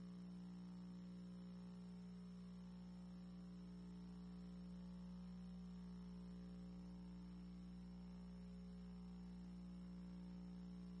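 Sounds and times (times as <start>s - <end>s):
faint electrical hum: 0.0s - 11.0s.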